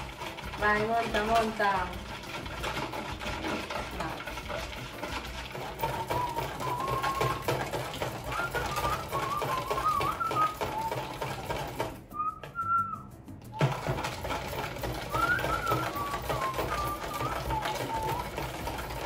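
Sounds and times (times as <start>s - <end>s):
whisk beating cream in bowl: 0.0s - 19.0s
person whistling a tune: 5.8s - 19.0s.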